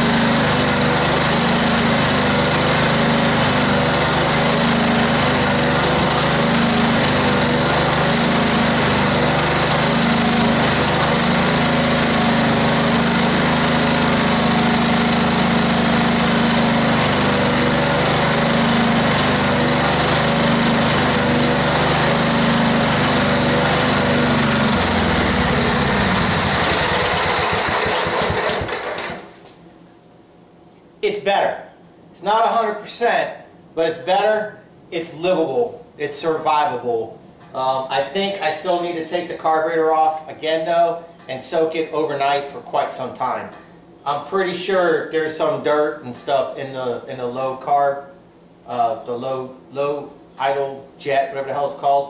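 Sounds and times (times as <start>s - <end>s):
riding mower engine running: 0.0s - 29.6s.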